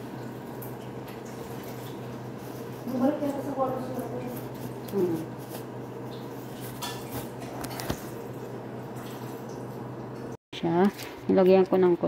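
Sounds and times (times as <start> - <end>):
dishes and utensils clinking: 6.6 - 8.0.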